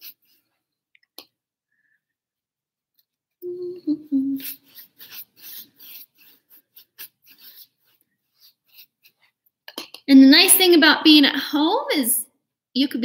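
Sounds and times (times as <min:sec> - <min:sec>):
paintbrush rasping across canvas: 0:00.0 - 0:00.7, 0:04.3 - 0:09.4
person humming: 0:03.4 - 0:04.7.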